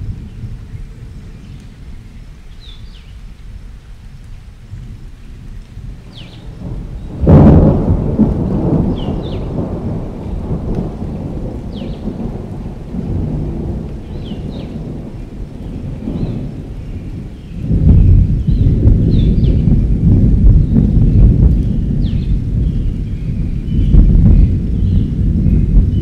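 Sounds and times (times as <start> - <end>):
rain: 0.0 - 26.0
thunder rumbling: 0.0 - 26.0
loud thunderclap: 6.0 - 26.0.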